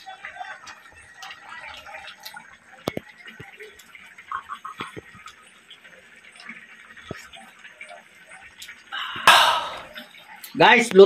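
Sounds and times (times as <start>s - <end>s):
soup bubbling: 0.2s - 10.6s.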